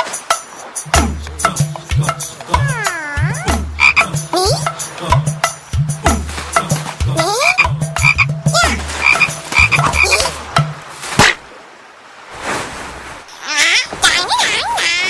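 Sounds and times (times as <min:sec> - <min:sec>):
cartoon frog croaking: 0:02.5 - 0:04.7, 0:07.2 - 0:10.3
sharp smack: 0:11.0 - 0:11.4.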